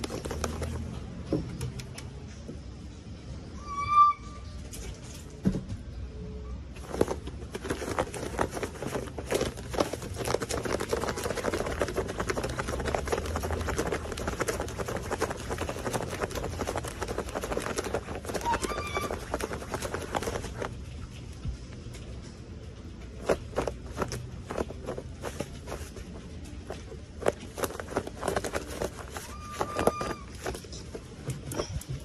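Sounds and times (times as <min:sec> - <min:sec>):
high squeak: 0:03.5 - 0:04.6.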